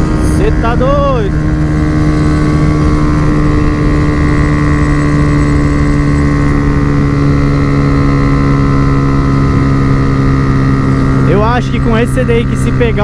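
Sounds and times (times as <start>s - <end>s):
motorcycle engine at high revs: 0.0s - 13.0s
wind rush on microphone: 0.0s - 13.0s.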